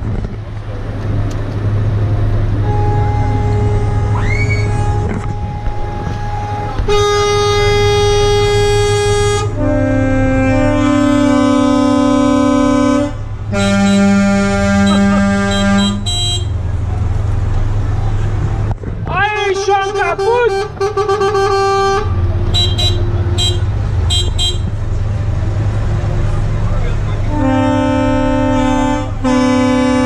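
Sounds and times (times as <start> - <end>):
low engine hum: 0.0 - 30.0
truck air horn blasts: 2.6 - 16.6, 19.4 - 24.8, 27.2 - 30.0.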